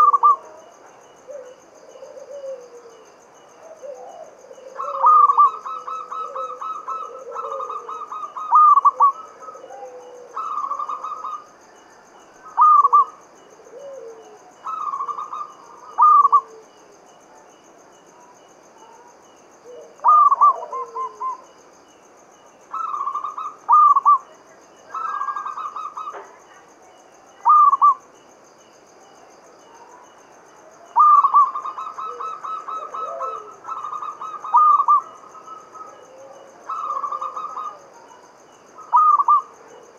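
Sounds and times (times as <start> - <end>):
dove cooing: 0.0 - 11.5, 12.4 - 16.8, 18.8 - 21.5, 22.7 - 26.6, 27.4 - 28.0, 30.8 - 38.2, 38.8 - 39.9.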